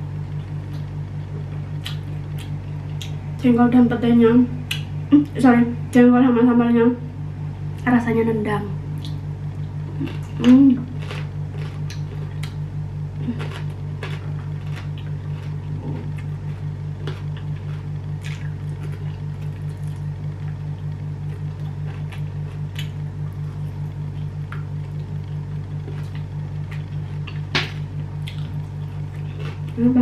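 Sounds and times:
low pulsing hum: 0:00.0 - 0:30.0
wet chewing and mouth clicks: 0:01.5 - 0:03.2, 0:09.0 - 0:12.6, 0:13.2 - 0:23.4, 0:24.1 - 0:29.8.

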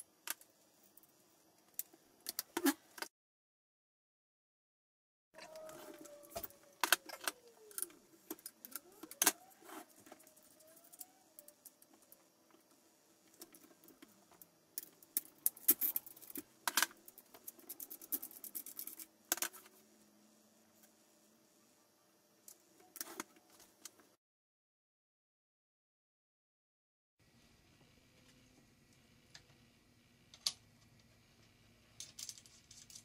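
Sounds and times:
faint squeaky rubbing: 0:05.4 - 0:06.8.

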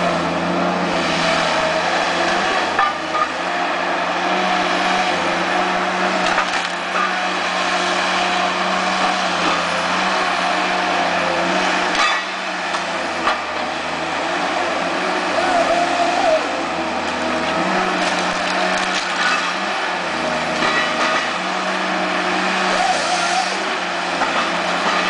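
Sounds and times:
diesel engine and hydraulics running: 0:00.0 - 0:25.0
wood cracking: 0:06.2 - 0:07.1, 0:17.0 - 0:19.6.

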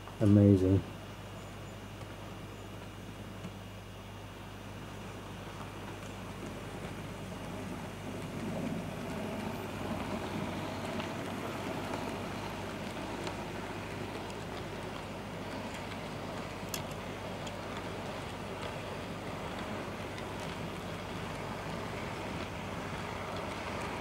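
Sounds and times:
steady low hum: 0:00.0 - 0:24.0
wheels rumbling over track: 0:04.7 - 0:24.0
model train motor whirring: 0:06.4 - 0:24.0.

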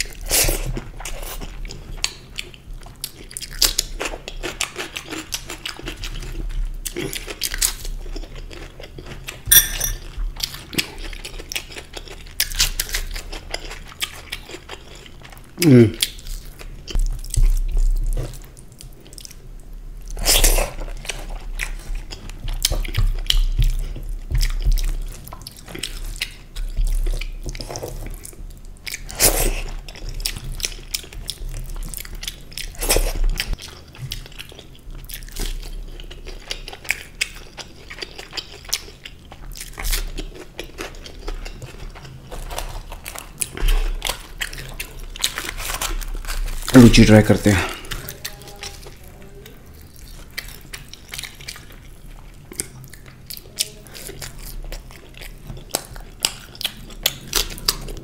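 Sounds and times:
wet chewing and lip smacking: 0:47.7 - 0:58.0.

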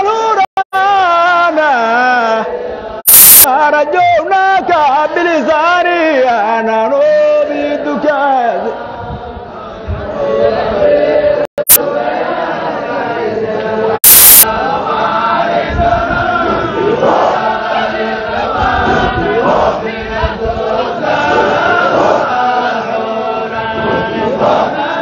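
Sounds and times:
group chanting in unison: 0:01.4 - 0:03.5, 0:07.2 - 0:25.0
harsh static burst: 0:03.1 - 0:03.5, 0:14.0 - 0:14.6.

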